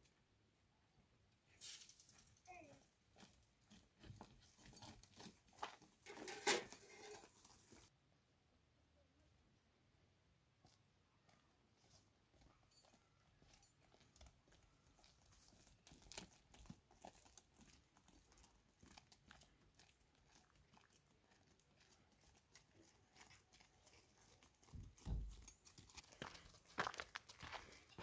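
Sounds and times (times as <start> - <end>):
footsteps on dry dirt: 2.7 - 6.3, 10.6 - 28.0.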